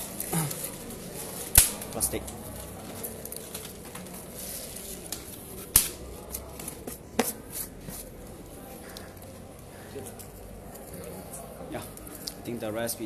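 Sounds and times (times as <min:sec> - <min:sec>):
plastic wrapping rustling: 0:00.1 - 0:07.5
plastic snapping: 0:01.5 - 0:02.0, 0:05.1 - 0:06.0.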